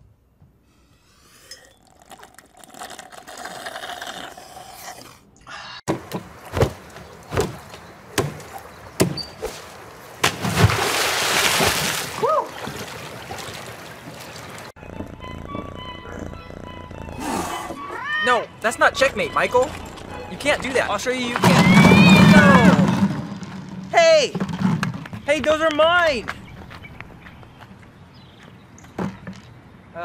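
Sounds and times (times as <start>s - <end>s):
diving board thumping: 5.9s - 14.7s
water sloshing: 5.9s - 14.8s
splash into pool: 9.4s - 14.7s.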